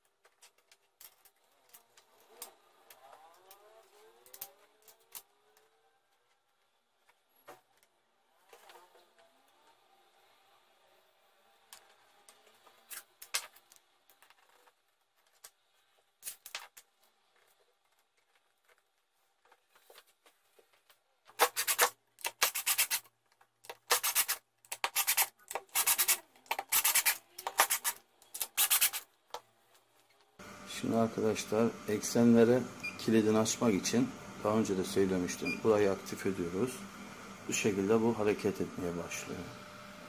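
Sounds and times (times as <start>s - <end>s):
screwdriver turning screws: 21.4s - 29.0s.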